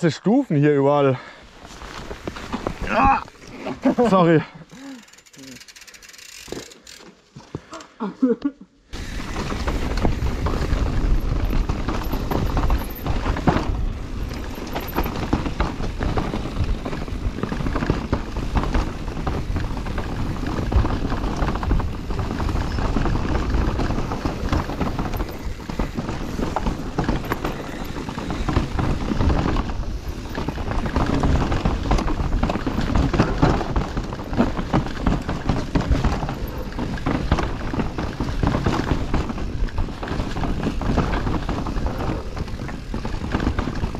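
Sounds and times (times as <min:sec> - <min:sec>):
bike rattling: 0:01.4 - 0:07.8, 0:08.9 - 0:43.9
bike tyres knocking over rocks: 0:01.6 - 0:03.4, 0:09.0 - 0:43.9
wind buffeting microphone: 0:09.0 - 0:43.9.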